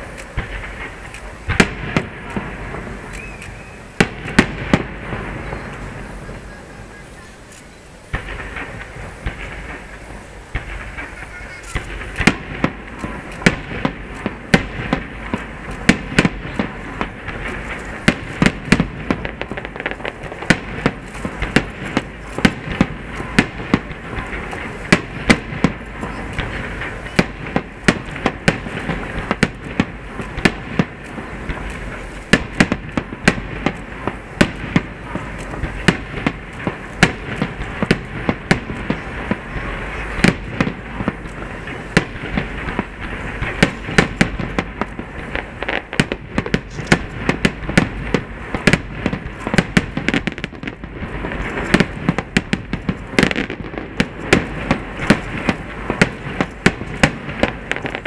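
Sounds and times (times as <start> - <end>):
continuous crackling: 0.0 - 58.0
firework shells bursting: 0.0 - 58.0.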